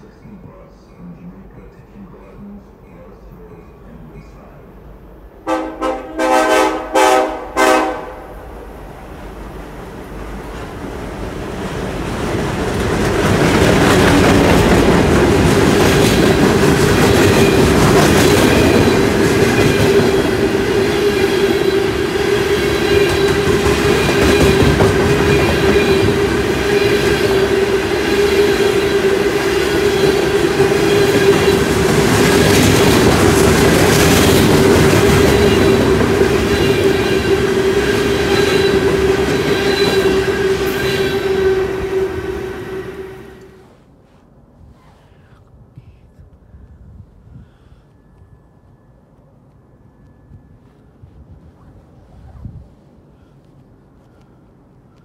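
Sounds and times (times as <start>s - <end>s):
diesel locomotive passing: 0.0s - 44.6s, 48.0s - 55.0s
steel wheels clattering on rail: 10.1s - 42.6s
clacks: 23.0s - 26.2s.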